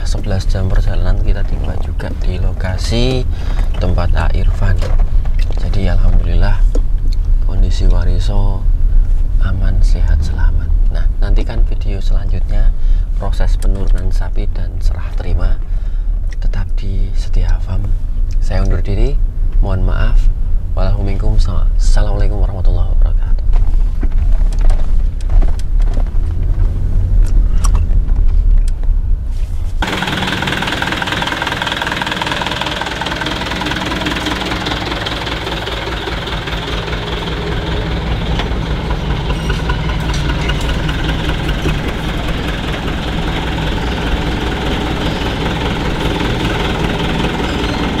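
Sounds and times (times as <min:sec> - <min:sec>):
truck engine rumbling: 0:00.0 - 0:13.3, 0:23.5 - 0:48.0.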